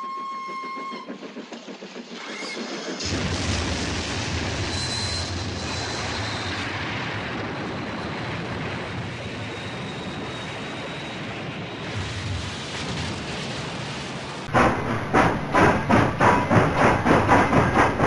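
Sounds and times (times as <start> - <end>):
heavy explosion rumble: 3.0 - 10.3, 11.8 - 18.0.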